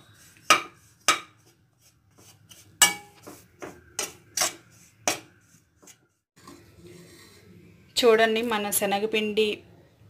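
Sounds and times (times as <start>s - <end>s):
metal spatula scraping a pan: 0.0s - 7.6s.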